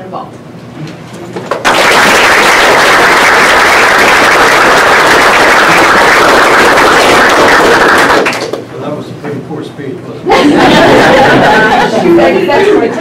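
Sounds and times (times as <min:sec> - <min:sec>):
audience applauding: 0:01.5 - 0:08.6.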